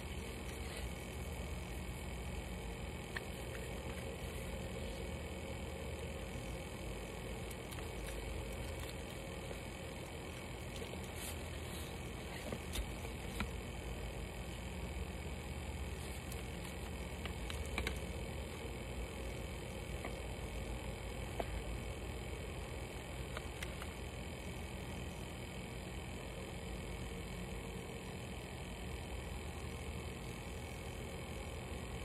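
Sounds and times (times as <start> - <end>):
low hum: 0.0 - 24.7.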